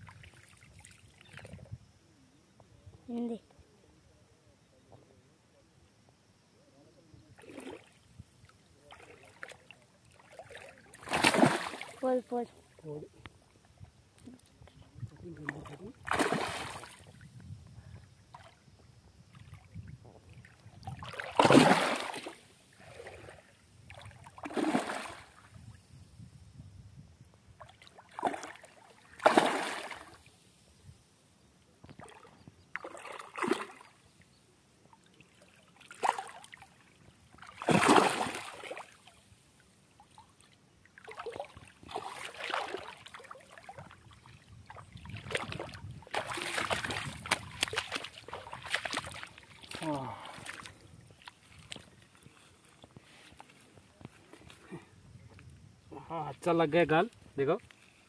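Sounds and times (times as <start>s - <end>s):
fish splashing in water: 10.2s - 12.0s, 16.1s - 17.0s, 20.9s - 23.3s, 24.3s - 25.4s, 28.0s - 30.2s, 32.0s - 33.9s, 37.4s - 39.0s, 41.0s - 44.2s, 45.0s - 50.7s.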